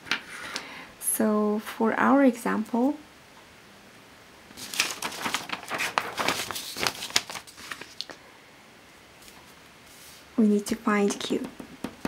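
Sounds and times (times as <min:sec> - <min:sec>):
paper rustling and crinkling: 0:04.5 - 0:08.2.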